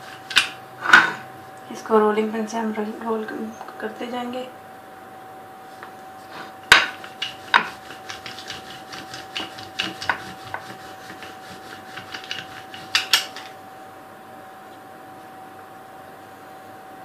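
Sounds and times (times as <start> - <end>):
faint steady hum: 0.0 - 17.0
rolling pin knocking on board: 6.7 - 13.2.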